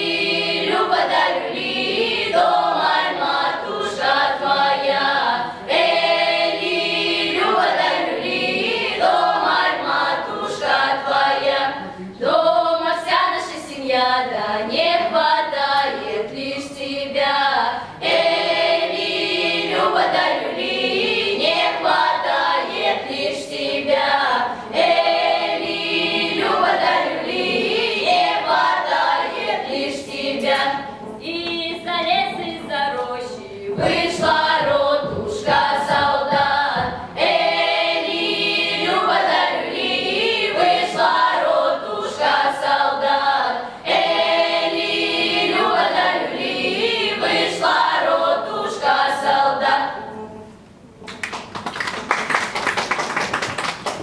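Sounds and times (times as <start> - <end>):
children's choir singing: 0.0 - 50.8
audience applause: 51.2 - 54.0.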